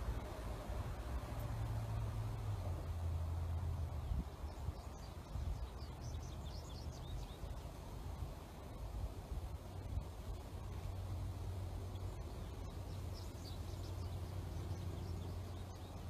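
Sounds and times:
small bird chirping: 4.0s - 7.8s, 11.8s - 16.0s.

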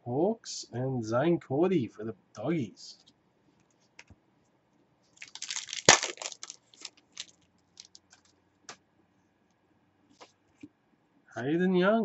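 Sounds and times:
wrapper crinkling and tearing: 5.2s - 8.0s.

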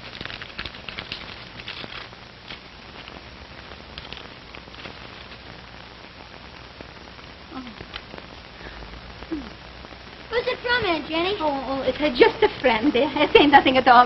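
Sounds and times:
paper crackling and rustling: 0.0s - 5.6s
steady hiss: 0.0s - 14.0s.

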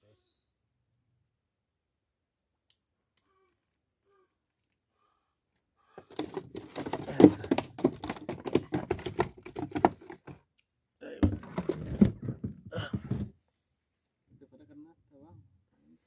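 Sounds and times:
fish flapping in plastic cooler: 6.0s - 10.4s, 11.2s - 12.6s.

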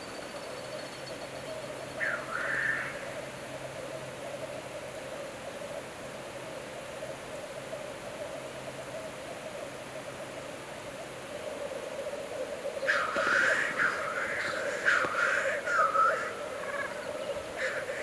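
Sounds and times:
harsh bird call: 2.0s - 3.2s, 12.8s - 18.0s
grouse chorus bubbling: 12.0s - 18.0s.

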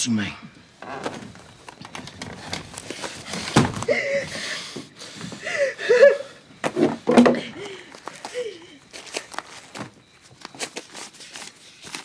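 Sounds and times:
handling clicks and rustles: 0.9s - 3.9s, 6.6s - 12.0s.

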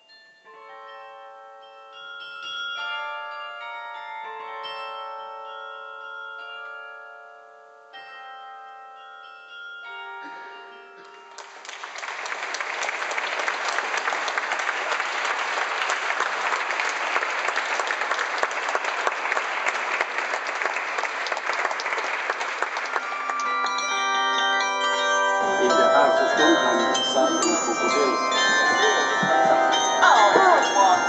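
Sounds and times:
carillon bells ringing: 0.0s - 11.6s, 22.9s - 31.0s
audience applause: 11.4s - 24.2s, 25.4s - 31.0s.

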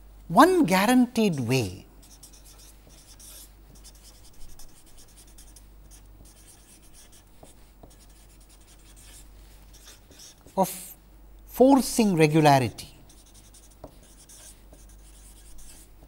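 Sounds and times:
marker scratching on paper: 2.0s - 10.6s, 13.1s - 16.0s.

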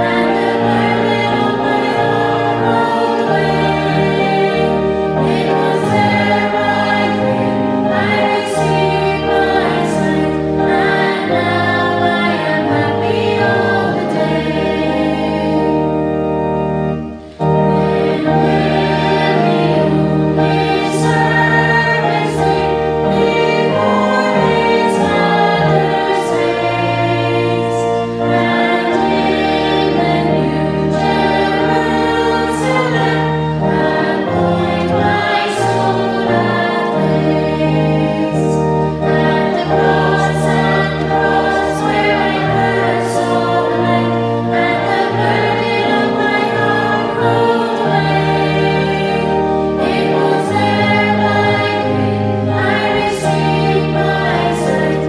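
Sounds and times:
sustained instrumental accompaniment: 0.0s - 55.0s
two women singing: 17.8s - 27.7s.

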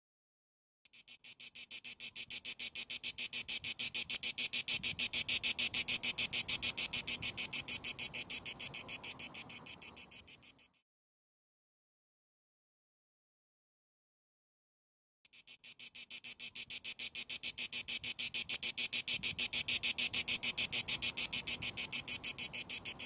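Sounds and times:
cicada buzzing: 0.9s - 10.8s, 15.3s - 23.0s.

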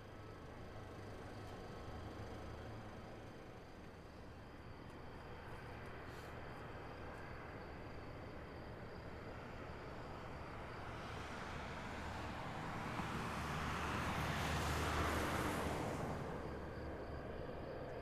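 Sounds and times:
vehicle passing: 11.1s - 16.7s.

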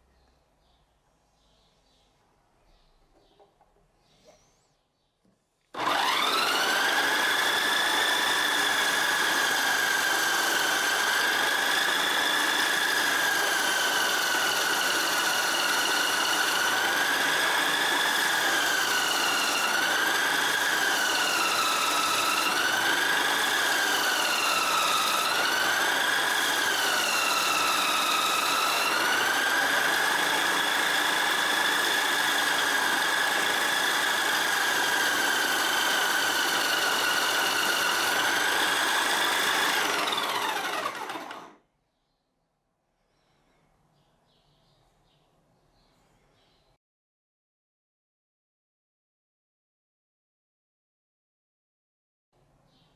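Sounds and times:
disc sander motor whine: 5.8s - 41.6s.

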